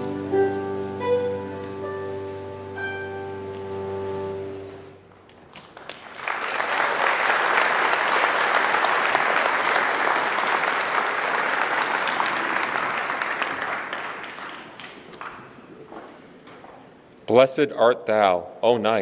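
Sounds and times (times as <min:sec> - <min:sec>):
audience applauding: 0:05.2 - 0:15.9.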